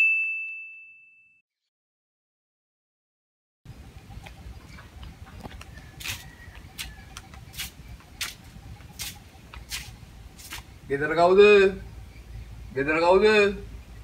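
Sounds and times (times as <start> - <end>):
quiet outdoor ambience: 3.7 - 14.0
footsteps walking: 3.9 - 10.7.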